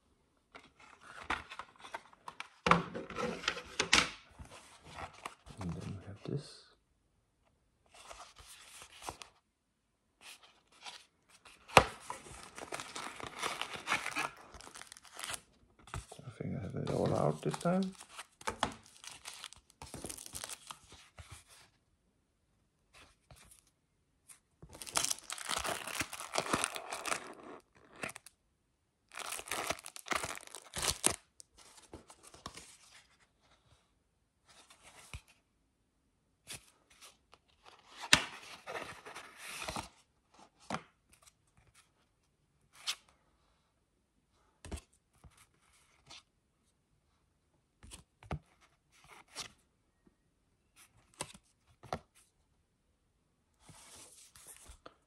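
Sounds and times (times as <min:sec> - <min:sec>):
paper and card rustling: 0:10.2 - 0:21.7, 0:24.7 - 0:28.3, 0:29.1 - 0:33.2.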